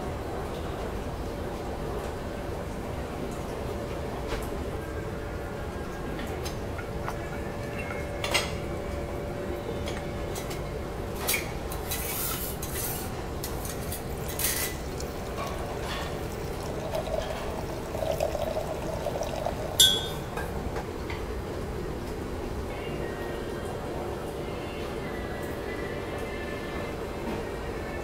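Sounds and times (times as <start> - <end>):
wine pouring into glass: 13.6 - 20.4
glass clinks: 16.9 - 20.3.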